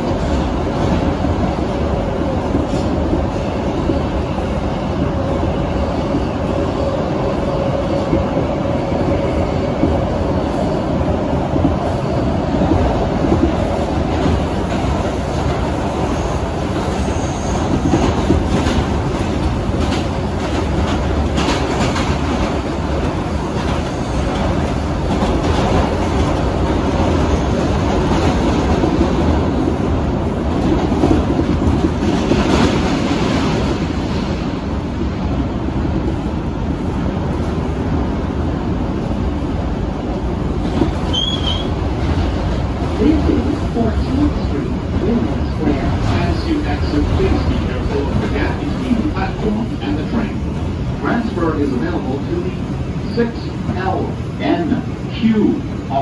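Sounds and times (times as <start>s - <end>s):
wheels rumbling on rail: 0.0s - 56.0s
high wheel squeal: 41.1s - 41.7s.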